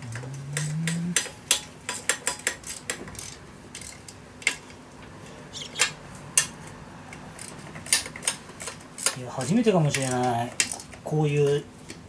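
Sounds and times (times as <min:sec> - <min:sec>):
low hum rising in pitch: 0:00.0 - 0:01.2.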